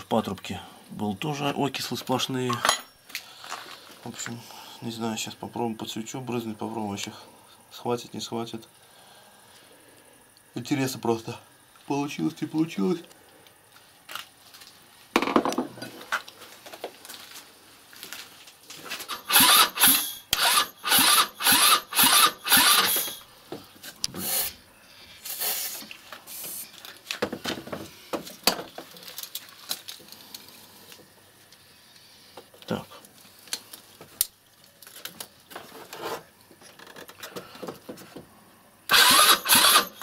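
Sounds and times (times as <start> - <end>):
short rasping spray hisses: 24.2 - 24.6, 25.2 - 26.7.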